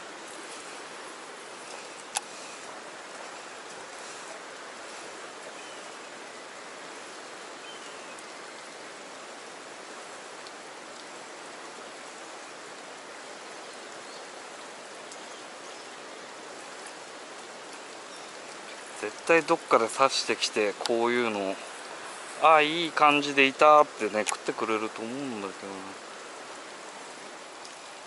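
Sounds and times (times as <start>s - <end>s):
river rushing: 0.0s - 28.0s.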